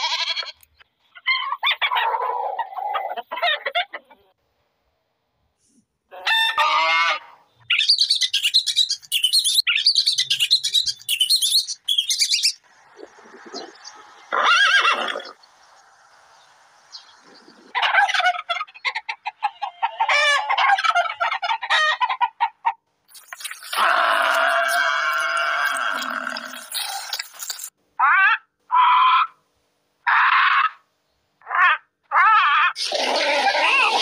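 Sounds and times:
chickens clucking and squawking: 0:01.0 - 0:04.4, 0:06.1 - 0:07.4, 0:12.4 - 0:15.5, 0:16.2 - 0:22.9
horse whinnying: 0:14.3 - 0:15.4, 0:32.7 - 0:34.0.

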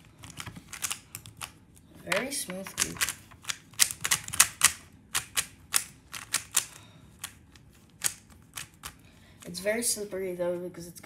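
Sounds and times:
puzzle cube plastic clicks: 0:00.2 - 0:07.4, 0:08.0 - 0:09.0.

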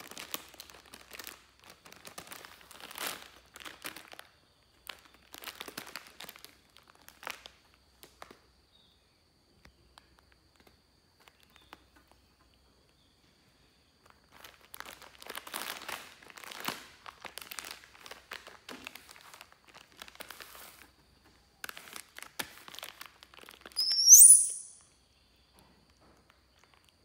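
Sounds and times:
crinkling and rustling: 0:00.0 - 0:08.5, 0:14.0 - 0:23.8
baby monkey squealing: 0:23.8 - 0:24.8.

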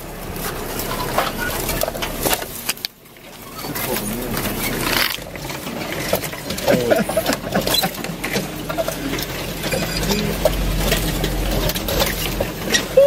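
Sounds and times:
low engine rumble: 0:00.0 - 0:13.0
truck body rattling and squeaking: 0:00.0 - 0:13.0.

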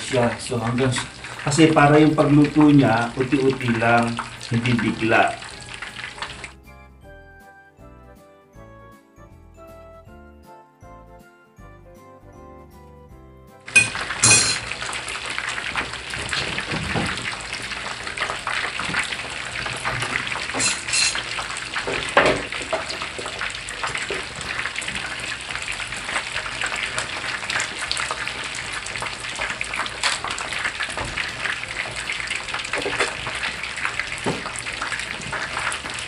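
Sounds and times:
chicken deep-frying in oil: 0:00.0 - 0:06.6, 0:13.7 - 0:36.0
jingly music: 0:04.4 - 0:15.0, 0:18.0 - 0:21.7, 0:22.7 - 0:27.3
metal tongs clinking on plate: 0:13.8 - 0:14.8, 0:20.6 - 0:21.4.

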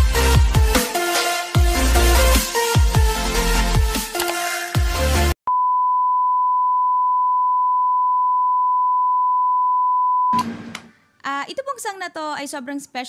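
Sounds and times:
electronic music: 0:00.0 - 0:05.4.

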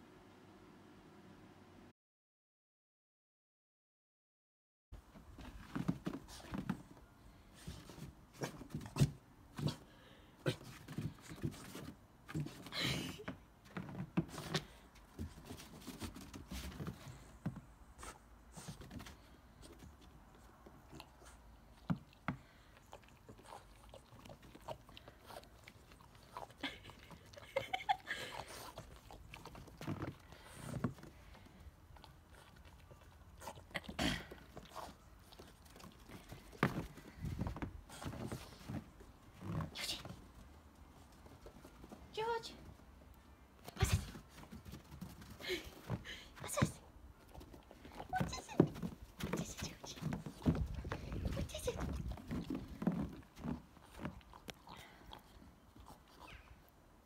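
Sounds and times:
dog sniffing and snuffling: 0:05.4 - 0:12.7, 0:13.7 - 0:42.8, 0:43.6 - 0:56.7.

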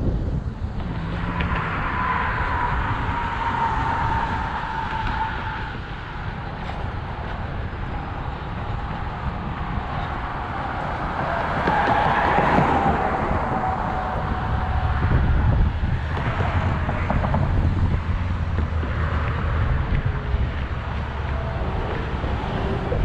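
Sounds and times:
road traffic passing: 0:00.0 - 0:23.0
wind rumbling on microphone: 0:00.0 - 0:23.0.

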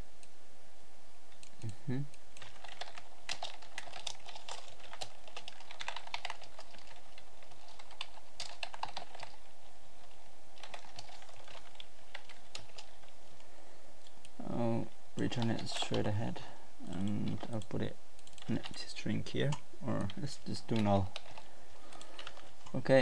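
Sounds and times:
typing on computer keyboard: 0:02.4 - 0:09.5, 0:10.6 - 0:13.1, 0:20.0 - 0:22.5.

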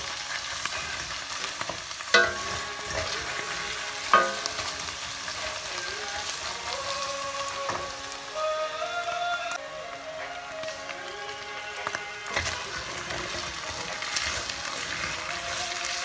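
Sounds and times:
meat sizzling in a pot: 0:00.0 - 0:16.0
spoon knocking against ringing pot: 0:02.2 - 0:02.7, 0:04.1 - 0:04.6
wooden spoon scraping a pot: 0:11.8 - 0:16.0.

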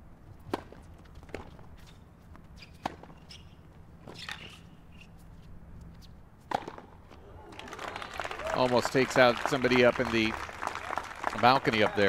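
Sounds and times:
racket hitting tennis ball: 0:06.4 - 0:07.0.

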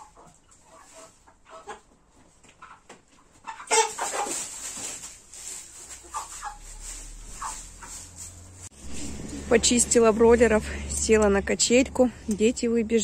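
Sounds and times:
chickens clucking: 0:00.0 - 0:09.5.

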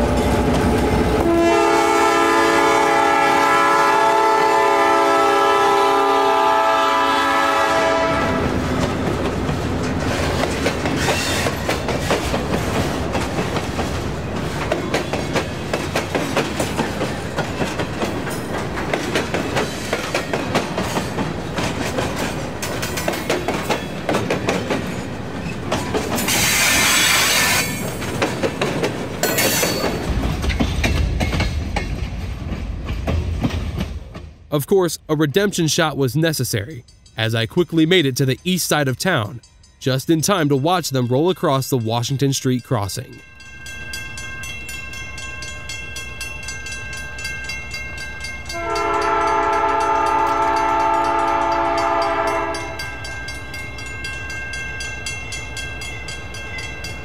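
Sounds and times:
locomotive air horn chord: 0:01.2 - 0:08.5, 0:48.5 - 0:52.8
wheels clacking over rail joints: 0:08.4 - 0:34.4.

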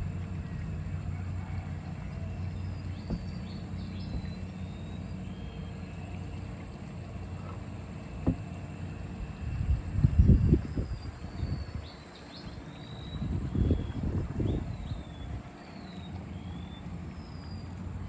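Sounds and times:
small boat engine humming: 0:00.0 - 0:18.0
knock: 0:03.1 - 0:03.3, 0:08.2 - 0:08.4.

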